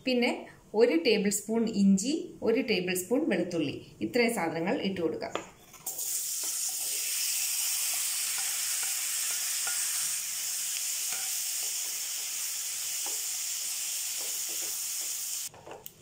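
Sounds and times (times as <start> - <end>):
vegetables sizzling in butter: 5.8 - 15.6.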